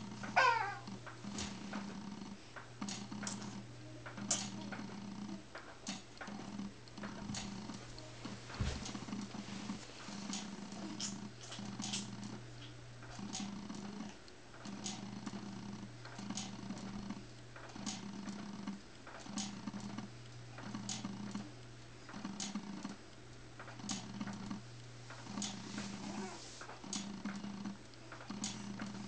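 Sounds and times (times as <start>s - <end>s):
cradle swing motor humming: 0.0s - 29.0s.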